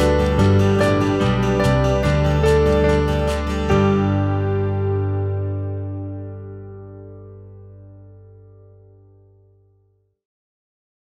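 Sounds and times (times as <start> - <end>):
acoustic guitar strumming: 0.0 - 6.8.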